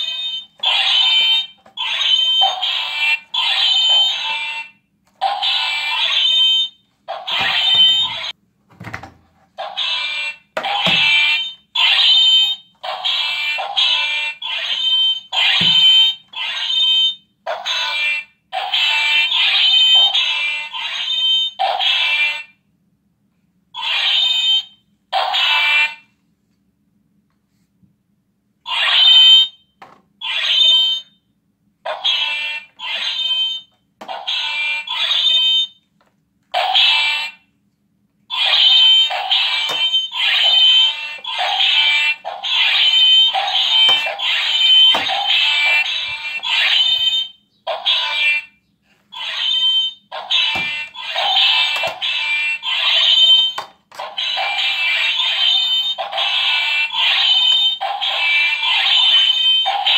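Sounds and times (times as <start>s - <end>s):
high electronic toy tone: 0.0s - 8.4s, 31.9s - 35.7s, 38.3s - 48.6s, 49.2s - 59.9s.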